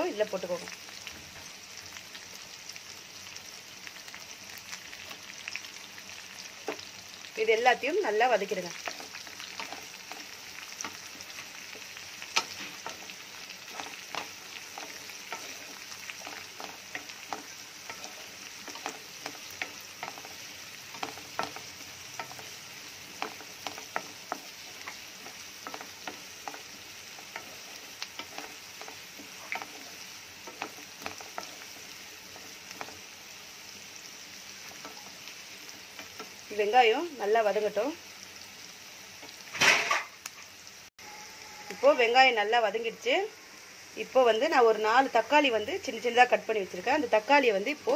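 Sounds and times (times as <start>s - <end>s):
onions sizzling in hot oil: 0.0s - 47.9s
spatula knocking and scraping pan: 8.8s - 33.0s.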